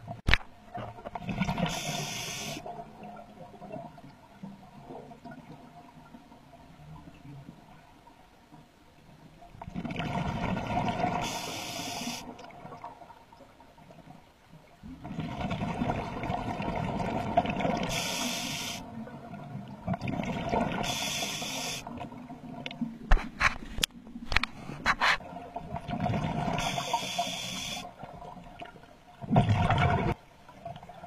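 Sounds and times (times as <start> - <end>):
diver breathing through regulator: 1.7 - 2.6, 11.2 - 12.3, 17.9 - 18.8, 20.8 - 21.9, 26.6 - 27.9.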